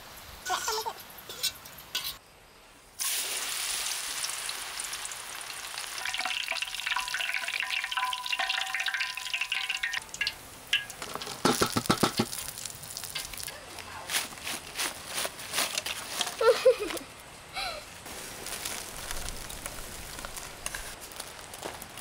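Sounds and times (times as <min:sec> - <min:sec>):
food sizzling in hot oil: 0:03.0 - 0:13.6, 0:18.1 - 0:21.2
wire skimmer stirring oil: 0:06.0 - 0:13.6, 0:15.6 - 0:16.6
sharp knocks: 0:11.4 - 0:12.4.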